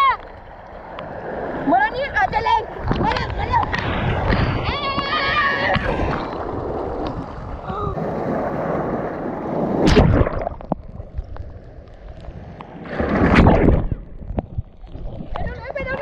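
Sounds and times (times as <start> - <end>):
sea surf churning: 0.8 - 11.1.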